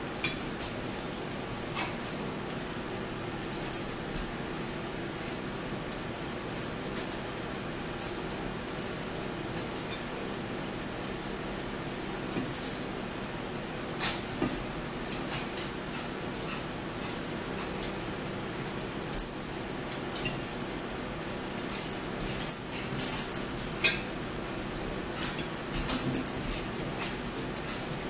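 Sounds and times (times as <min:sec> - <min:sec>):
steady room hum: 0:00.0 - 0:28.0
cutlery and plates handled: 0:21.7 - 0:24.1
forks clicking on plates: 0:21.7 - 0:24.1, 0:25.2 - 0:28.0.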